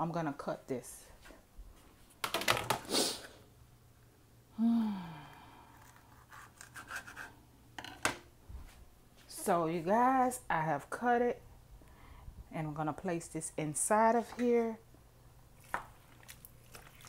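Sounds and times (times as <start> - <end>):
person humming: 4.5 - 5.7.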